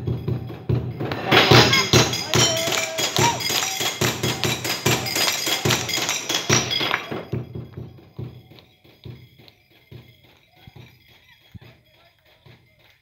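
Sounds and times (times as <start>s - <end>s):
faint clinks: 0.0s - 13.0s
upbeat music with hand-clapping: 0.0s - 13.0s.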